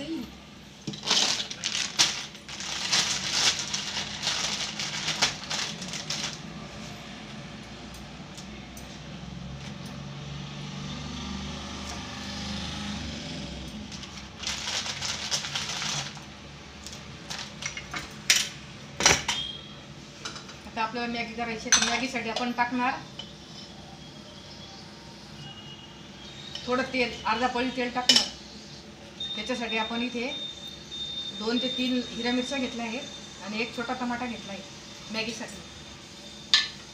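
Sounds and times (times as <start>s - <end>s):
kitchen items clinking and rustling: 0.9s - 6.9s, 13.6s - 16.3s, 16.9s - 19.6s.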